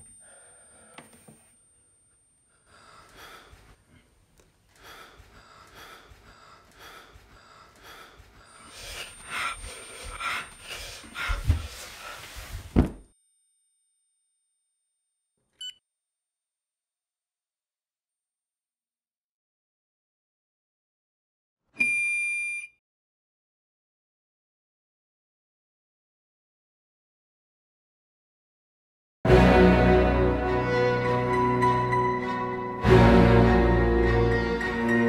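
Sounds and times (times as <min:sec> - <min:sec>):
short electronic beep: 0:21.8 - 0:22.8.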